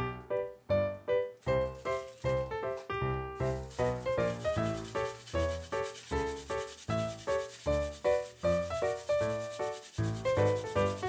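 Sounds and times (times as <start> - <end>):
garlic on metal grater: 3.6 - 11.0.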